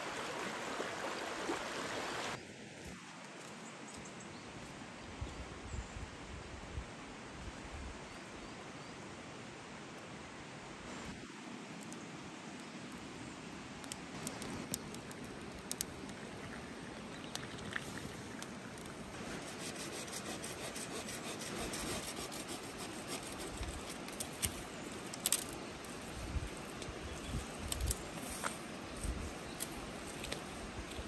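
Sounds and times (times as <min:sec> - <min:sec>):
steady outdoor hiss: 0:00.0 - 0:31.0
twigs snapping: 0:24.0 - 0:25.6, 0:27.6 - 0:31.0.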